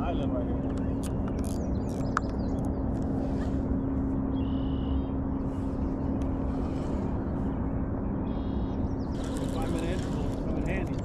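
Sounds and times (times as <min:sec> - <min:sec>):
low hum: 0:00.0 - 0:11.0
low wind rumble: 0:00.0 - 0:11.0
bird call: 0:04.4 - 0:05.2.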